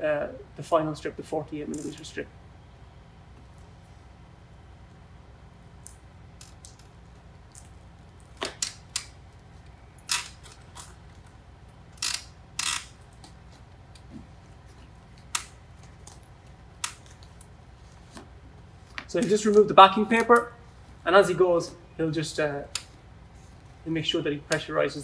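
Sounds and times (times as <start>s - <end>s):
tape crinkling: 5.7s - 20.9s.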